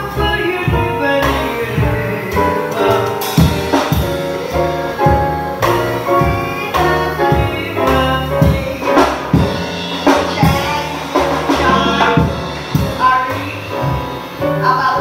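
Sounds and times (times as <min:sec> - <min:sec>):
drum kit beat: 0:00.0 - 0:15.0
grand piano: 0:00.0 - 0:15.0
upright double bass: 0:00.0 - 0:15.0
woman singing: 0:06.2 - 0:12.3.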